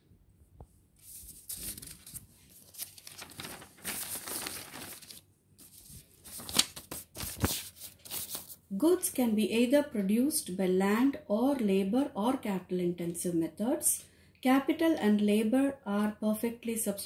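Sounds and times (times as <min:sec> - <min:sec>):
notebook pages turning: 0:01.0 - 0:08.6
paper pages snapping: 0:01.5 - 0:08.5.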